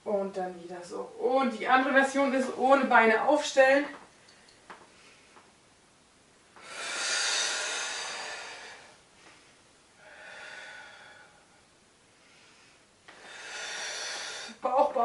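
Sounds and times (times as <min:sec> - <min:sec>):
woman breathing hard: 0:06.6 - 0:14.6.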